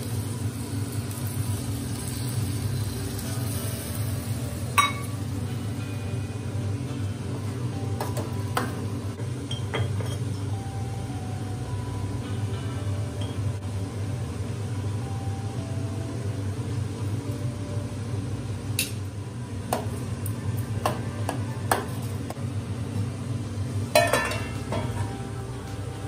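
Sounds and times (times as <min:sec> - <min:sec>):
steady low hum: 0:00.0 - 0:26.0
spoon clinking against metal pot: 0:04.8 - 0:05.2.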